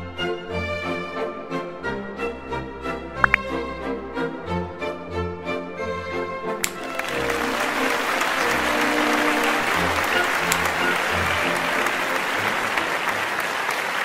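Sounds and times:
upbeat background music: 3.0s - 4.1s
crowd applause: 6.6s - 14.0s.

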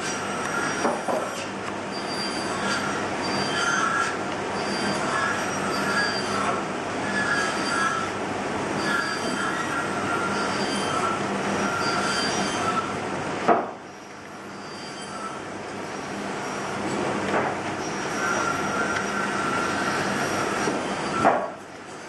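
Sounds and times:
knife whittling wood squeaks: 0.0s - 8.2s, 8.8s - 12.9s, 14.4s - 15.4s, 17.8s - 21.3s.

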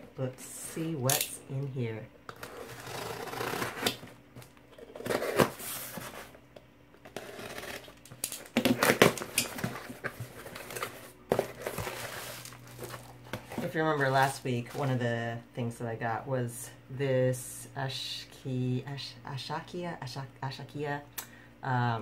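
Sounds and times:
packaging crinkling and rustling: 7.1s - 14.8s.

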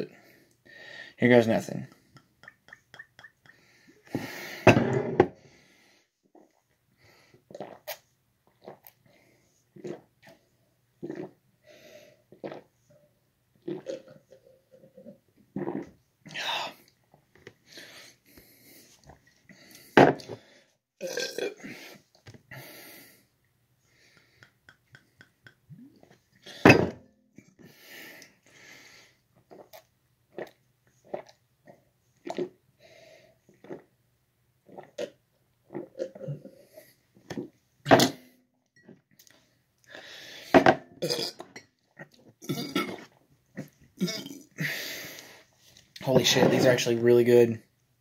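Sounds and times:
man burping: 21.0s - 21.6s, 41.0s - 41.5s, 42.4s - 43.0s, 44.0s - 44.5s.

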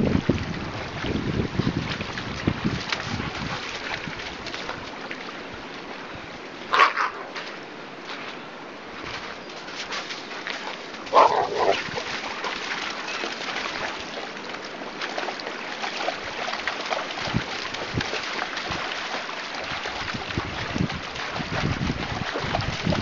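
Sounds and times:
dogs splashing through water: 0.0s - 23.0s
stream rushing: 0.0s - 23.0s
dog barking: 11.1s - 11.8s.

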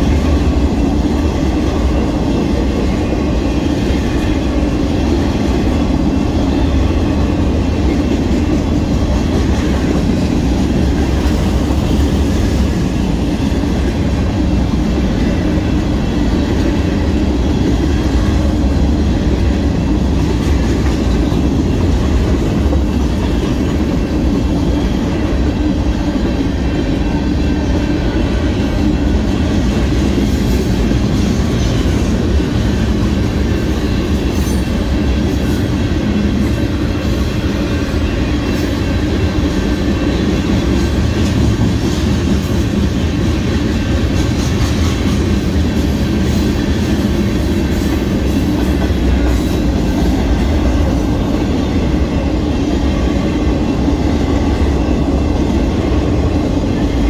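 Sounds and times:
freight train wheels rumbling on rails: 0.0s - 57.0s.

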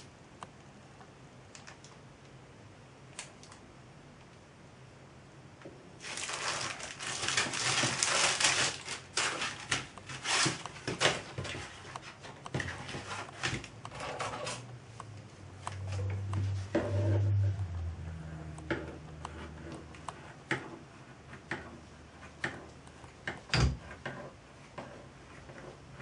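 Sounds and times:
plastic bag crinkling: 6.0s - 11.8s
low hum: 14.6s - 20.3s.

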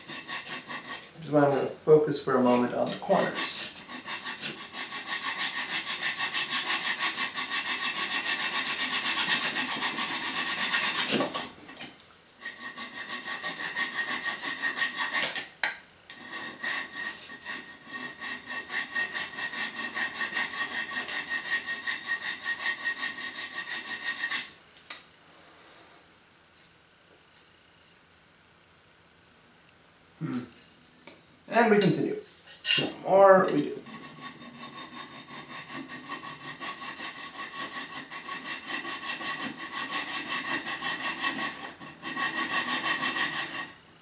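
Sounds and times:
hand file rasping on metal: 0.0s - 1.7s, 2.4s - 11.6s, 12.4s - 15.4s, 16.1s - 24.5s, 32.5s - 43.8s.

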